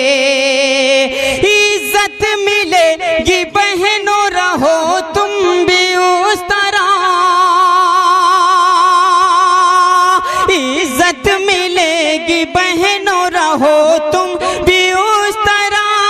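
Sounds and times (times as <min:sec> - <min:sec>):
man singing devotional verse: 0:00.0 - 0:16.0.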